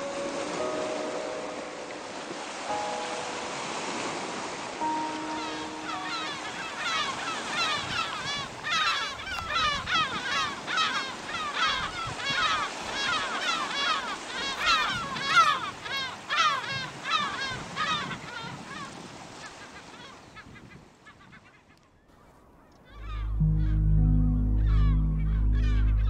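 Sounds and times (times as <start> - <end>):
flock of birds calling: 4.8 - 21.6, 22.8 - 26.0.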